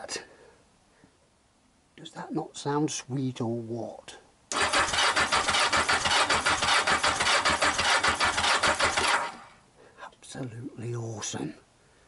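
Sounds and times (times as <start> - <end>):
engine cranking on starter motor: 4.5 - 9.6.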